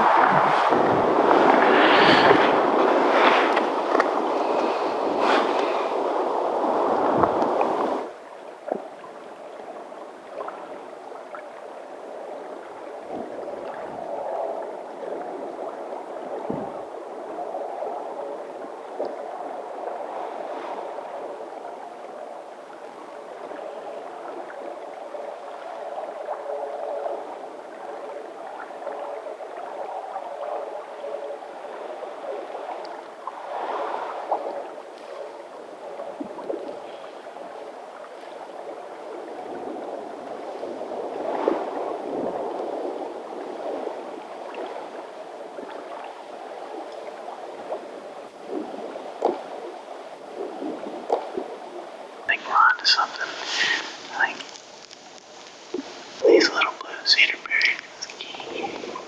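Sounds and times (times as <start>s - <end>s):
small creek gurgling: 0.0s - 17.7s, 21.6s - 59.0s.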